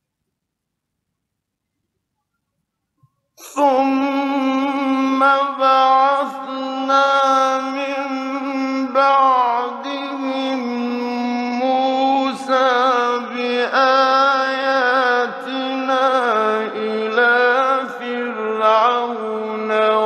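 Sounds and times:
man chanting recitation: 0:03.4 - 0:20.0.

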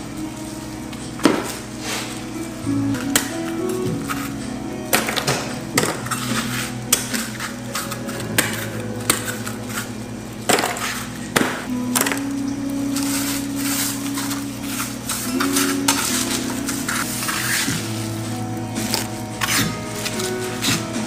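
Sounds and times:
soft background music: 0:00.0 - 0:21.0.

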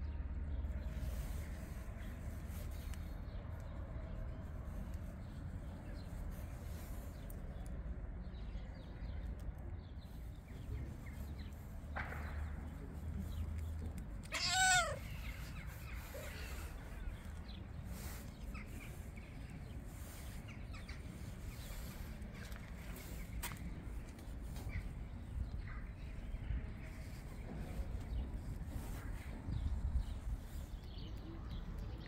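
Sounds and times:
low steady background rumble: 0:00.0 - 0:32.0
cat meowing: 0:14.2 - 0:15.4.

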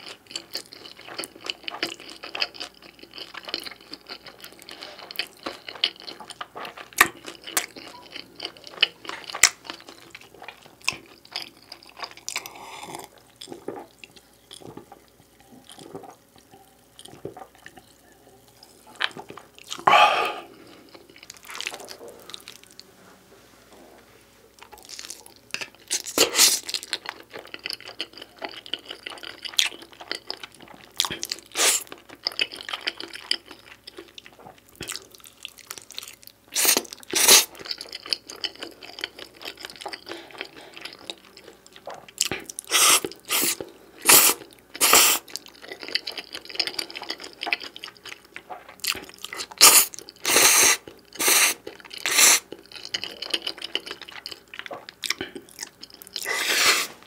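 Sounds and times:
chewing pizza with crunchy bites: 0:00.0 - 0:22.9, 0:24.5 - 0:57.0.

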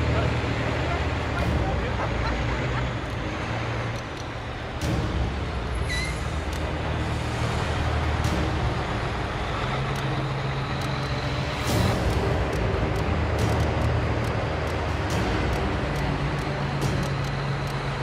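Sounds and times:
heavy truck engine droning: 0:00.0 - 0:18.0
road noise: 0:00.0 - 0:18.0
brief squeak: 0:05.9 - 0:06.3.

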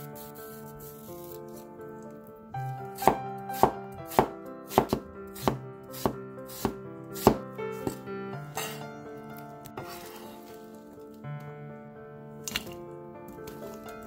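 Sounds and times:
soft solo piano music: 0:00.0 - 0:14.0
cleaver chopping on wooden board: 0:03.0 - 0:08.0.

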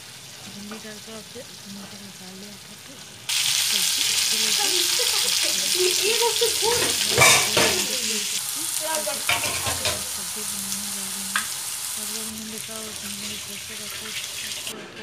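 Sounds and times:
potatoes sizzling in hot oil: 0:00.0 - 0:14.7
spatula scraping and knocking pan: 0:06.6 - 0:08.0, 0:09.3 - 0:10.1.

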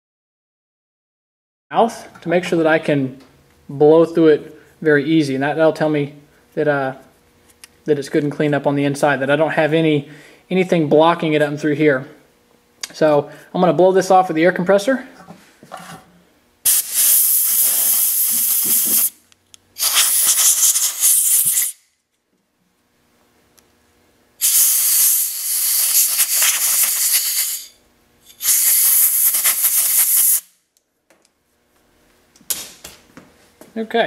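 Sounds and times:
air blow gun hissing: 0:16.7 - 0:19.2, 0:19.8 - 0:21.8, 0:24.4 - 0:30.6.

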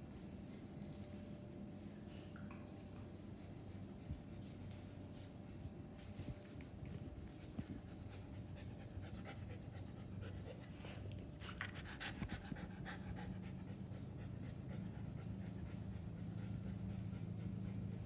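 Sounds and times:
steady low hum: 0:00.0 - 0:18.0
puppy panting: 0:06.0 - 0:18.0.

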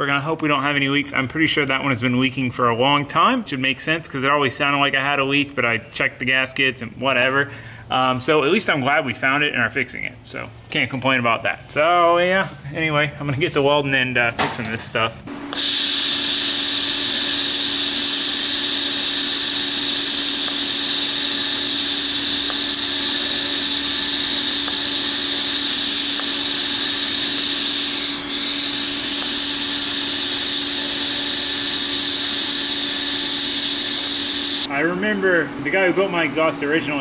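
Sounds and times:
welding arc buzzing and hissing: 0:15.3 - 0:34.7.

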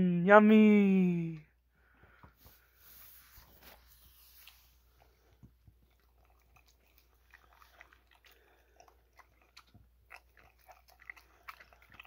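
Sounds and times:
puppy chewing and smacking: 0:04.5 - 0:12.0.

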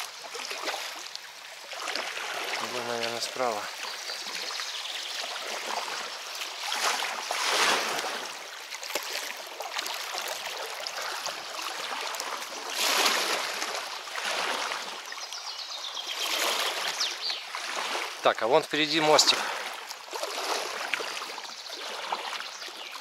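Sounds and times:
river water splashing: 0:00.0 - 0:23.0.

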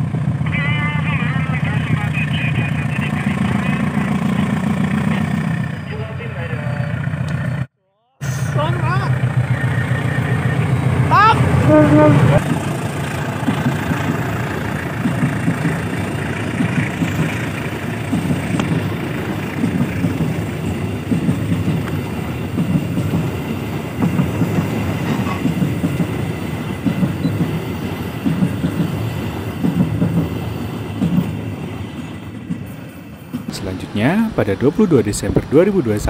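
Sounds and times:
train wheels clattering over rail joints: 0:12.4 - 0:36.0
low rumble of rolling wagons: 0:33.4 - 0:36.0.

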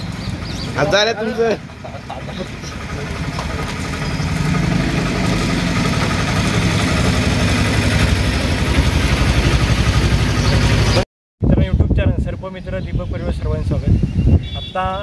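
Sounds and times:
vehicle engine idling: 0:00.0 - 0:11.0.

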